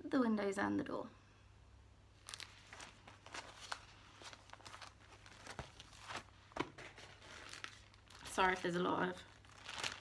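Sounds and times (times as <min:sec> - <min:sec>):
cloth and plastic rustling: 0:02.1 - 0:10.0.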